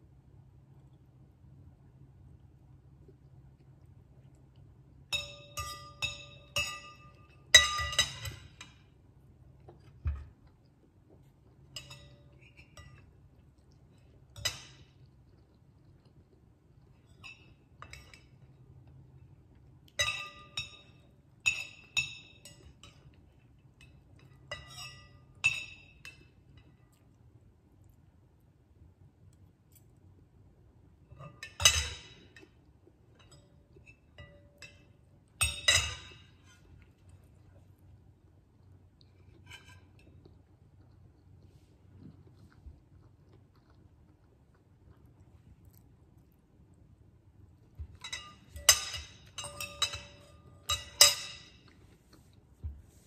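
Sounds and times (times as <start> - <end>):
cutlery clinking on ceramic bowl: 5.0 - 9.0, 11.6 - 13.7, 14.3 - 15.1, 17.0 - 18.6, 19.9 - 26.8, 31.1 - 37.1, 47.8 - 51.8.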